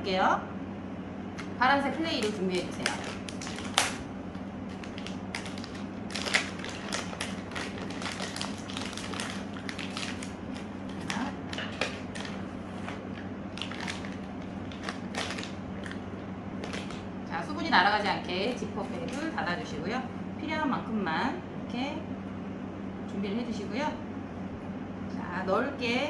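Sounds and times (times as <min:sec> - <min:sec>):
low steady hum: 0:00.0 - 0:26.0
plastic bag crinkling: 0:01.4 - 0:17.1.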